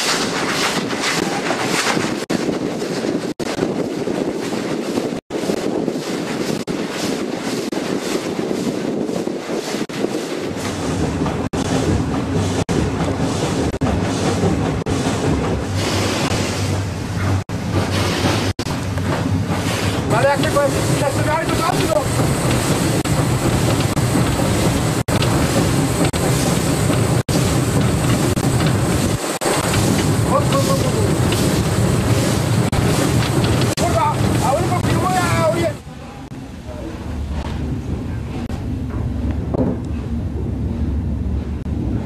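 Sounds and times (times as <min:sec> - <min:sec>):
rushing air: 0:00.0 - 0:42.0
steam locomotive running: 0:00.0 - 0:42.0
wind buffeting microphone: 0:00.0 - 0:42.0
deep rumble: 0:10.6 - 0:42.0.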